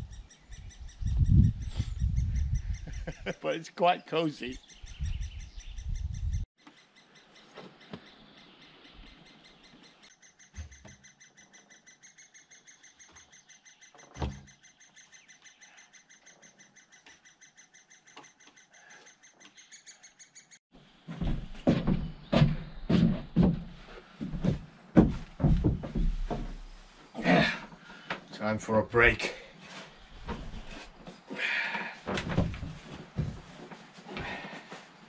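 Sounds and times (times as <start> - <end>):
woodpecker high chirps: 4.6 - 20.6.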